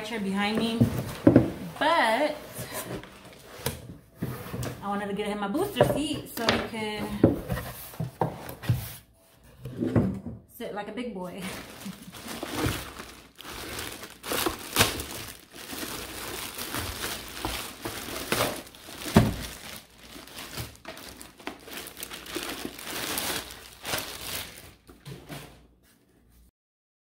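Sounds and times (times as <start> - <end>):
plastic wrapping crinkling: 11.4 - 25.0.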